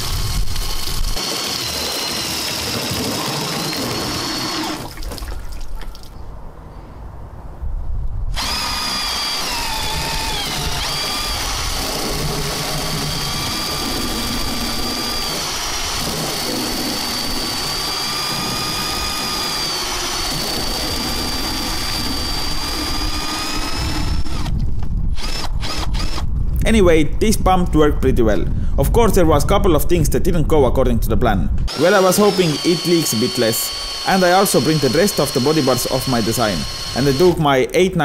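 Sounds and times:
cordless drill motor whine: 0.0 - 4.9, 8.3 - 26.3, 31.7 - 37.5
water spraying and splashing: 1.2 - 6.2.

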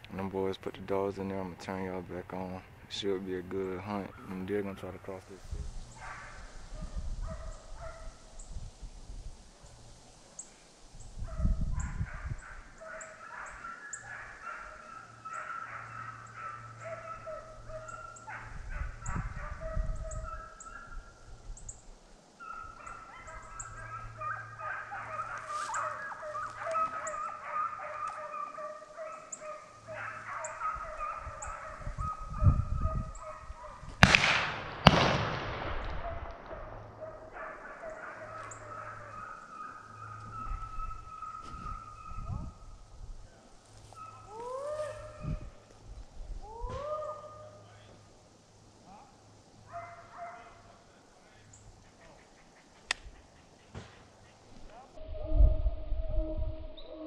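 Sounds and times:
hounds baying: 3.5 - 8.3, 11.2 - 21.2, 22.4 - 34.0, 36.0 - 42.8, 43.8 - 45.7, 46.4 - 47.8, 48.9 - 50.9
gunshots ringing out: 34.0 - 37.0.

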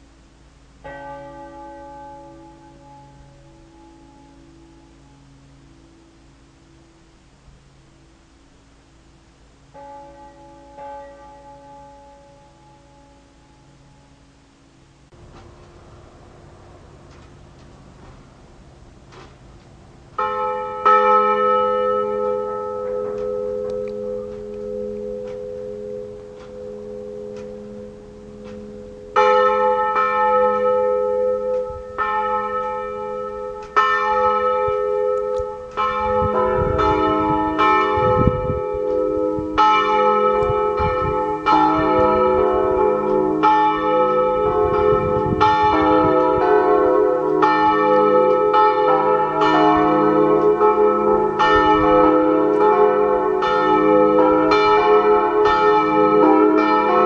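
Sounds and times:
church bells pealing: 0.8 - 15.2, 20.1 - 57.0
lingering bell hum: 20.2 - 57.0.

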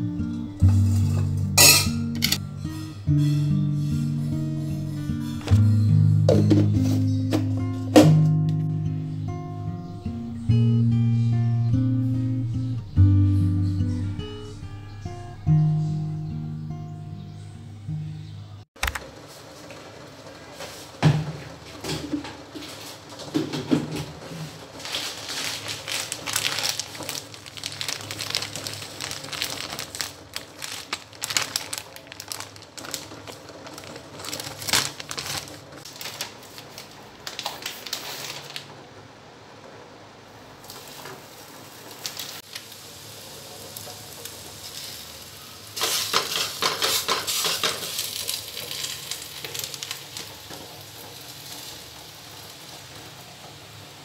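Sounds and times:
dishes and utensils clattering: 0.6 - 2.5, 6.3 - 8.1, 45.8 - 48.9.

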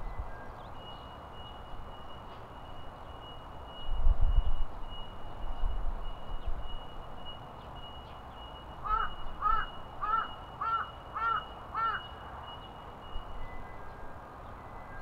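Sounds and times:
crow cawing: 8.8 - 12.1.

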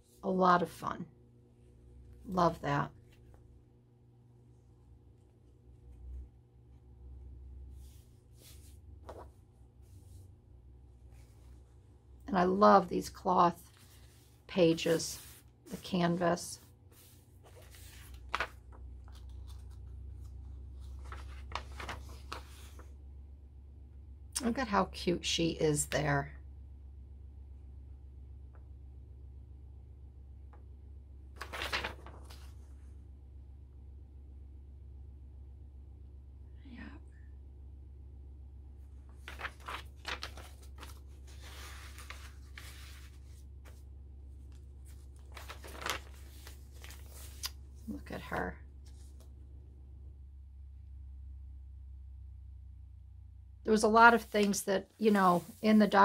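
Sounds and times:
low steady hum: 0.0 - 56.0
paper pages rustling: 7.7 - 10.2, 13.6 - 22.9, 31.4 - 32.8, 39.0 - 49.3, 54.1 - 56.0.

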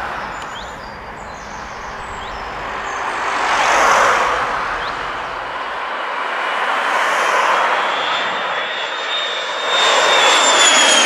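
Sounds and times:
rushing engine with low rumble: 0.0 - 6.9.

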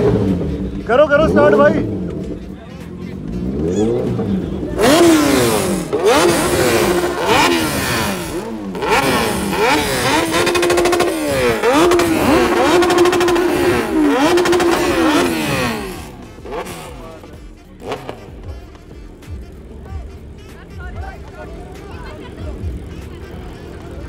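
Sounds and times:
motorcycle engines revving: 0.0 - 24.0.

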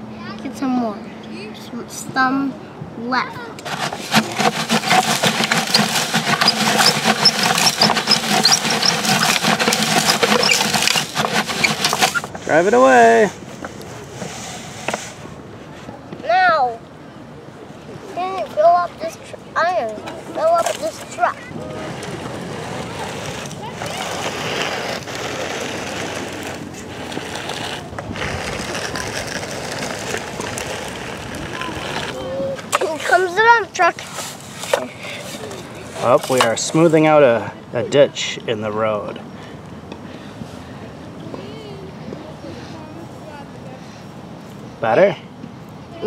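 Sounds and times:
toy bulldozer tracks rattling: 3.6 - 13.2, 19.8 - 37.0
sand pattering down plastic chute: 3.6 - 15.2, 20.4 - 37.1.

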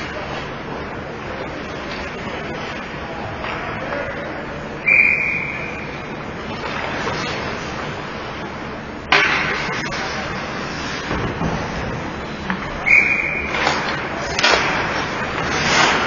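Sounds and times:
steady rink noise hiss: 0.0 - 16.0
referee's whistle blast: 4.8 - 5.9, 12.8 - 13.5.

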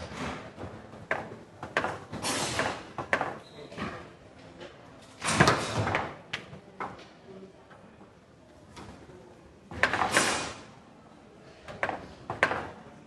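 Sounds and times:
foosball ball clacking: 1.0 - 2.1.

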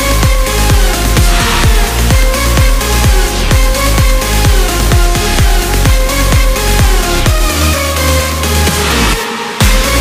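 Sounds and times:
deep kick drum: 0.0 - 7.6, 9.6 - 10.0
electronic dance music: 0.0 - 10.0
synth melody: 0.0 - 10.0.

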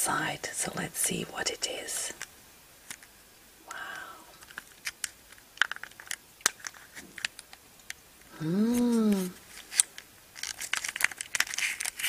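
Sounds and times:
plastic clicks and crinkles: 2.2 - 3.1, 4.4 - 8.0, 9.1 - 12.0
person saying wow: 8.4 - 9.4.

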